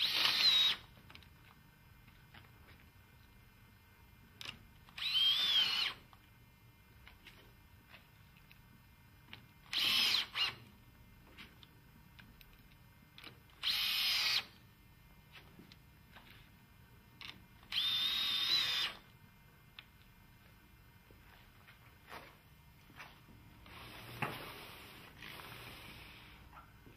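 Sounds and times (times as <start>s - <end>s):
drill-driver whirring: 0.0s - 0.9s, 4.9s - 6.1s, 9.6s - 10.7s, 13.6s - 14.6s, 17.2s - 19.0s.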